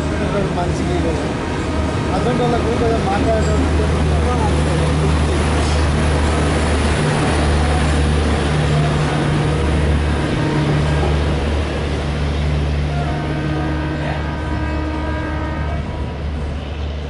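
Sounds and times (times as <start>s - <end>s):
diesel locomotive idling: 0.0s - 17.0s
train coaches rolling on rails: 0.0s - 17.0s.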